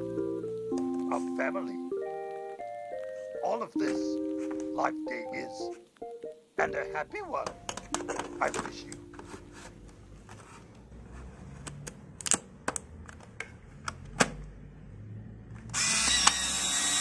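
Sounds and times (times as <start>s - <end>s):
plastic clicks and knocks: 7.4s - 9.3s
camera motor whirring: 15.7s - 17.0s.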